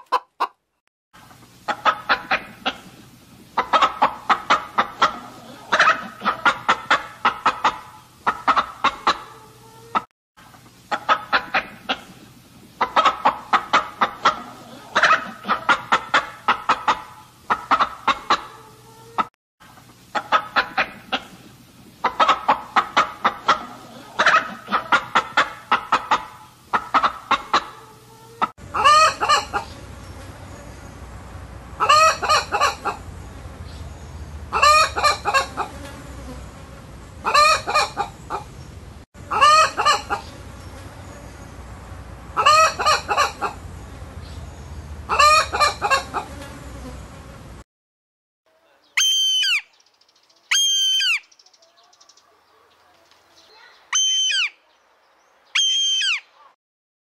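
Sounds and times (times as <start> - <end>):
chickens clucking: 0.0 - 47.3
low hum: 29.5 - 31.9, 32.9 - 34.6, 40.3 - 42.4, 43.5 - 45.1
pitched bird call: 48.8 - 52.3, 53.4 - 54.7, 55.5 - 56.6.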